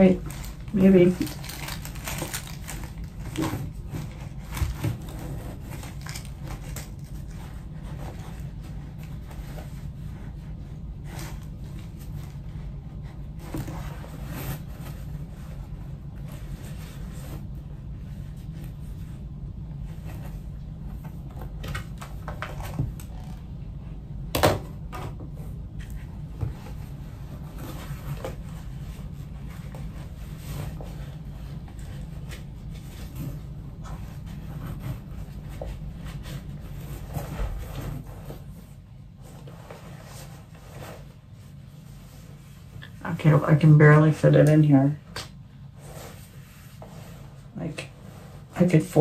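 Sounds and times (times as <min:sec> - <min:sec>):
cloth rustling: 0:00.0 - 0:23.9
steady low hum: 0:00.0 - 0:49.0.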